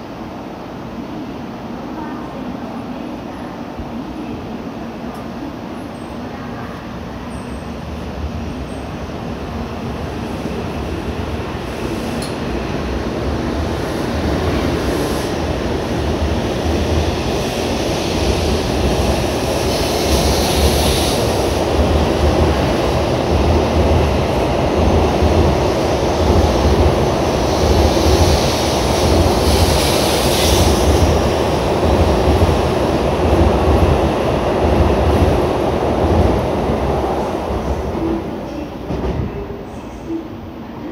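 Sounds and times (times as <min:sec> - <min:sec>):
train rumbling past: 0:00.0 - 0:40.9
train hissing: 0:10.2 - 0:12.6, 0:13.4 - 0:23.3, 0:25.7 - 0:33.2.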